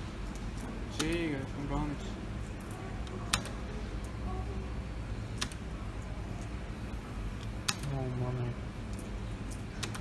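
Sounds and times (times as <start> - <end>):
machine low hum: 0.0 - 10.0.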